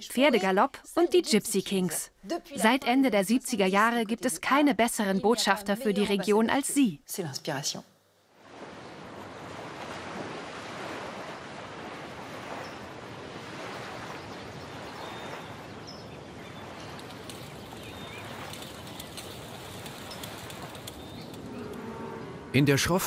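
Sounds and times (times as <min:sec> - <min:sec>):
wind: 0:00.0 - 0:23.0
water: 0:08.3 - 0:23.0.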